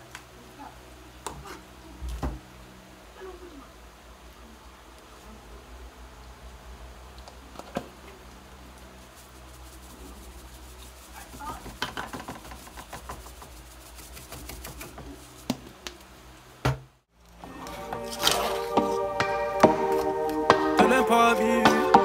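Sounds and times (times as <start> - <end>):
seasoning shaker rattling: 8.8 - 15.7.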